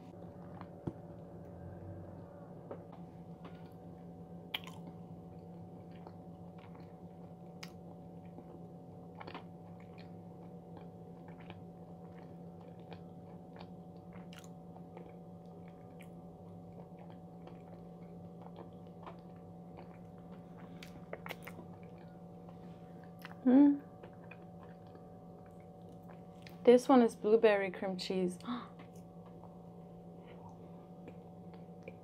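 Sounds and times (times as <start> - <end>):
low electrical hum: 0.0 - 32.0
chewing close to microphone: 4.5 - 26.6.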